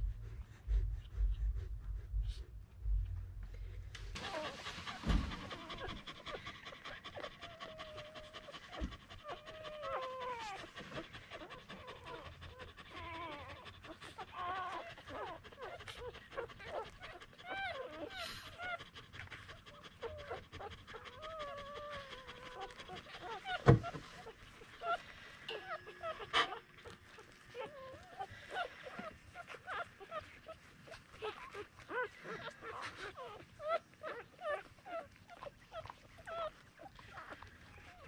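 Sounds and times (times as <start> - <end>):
dog panting: 0.0 - 38.0
puppies squeaking and whining: 4.0 - 38.0.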